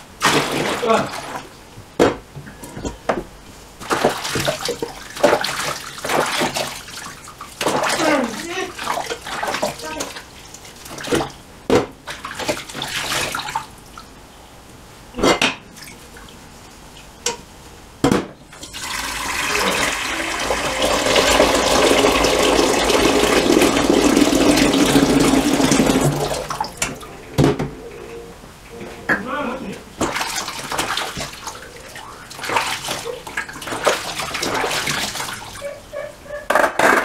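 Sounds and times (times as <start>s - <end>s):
tap water running: 3.8s - 11.4s, 18.5s - 28.1s, 29.9s - 35.7s.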